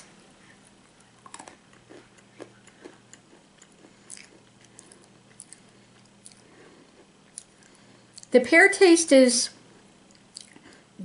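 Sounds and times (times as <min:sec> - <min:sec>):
person chewing nuts: 0:00.9 - 0:08.3, 0:10.0 - 0:10.9.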